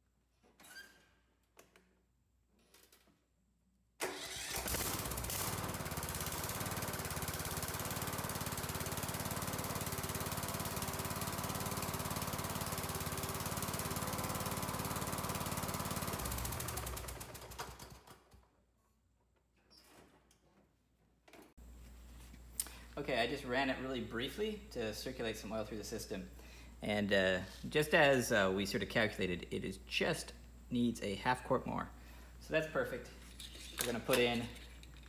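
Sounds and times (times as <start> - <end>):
lawn tractor engine running: 4.0 - 18.2.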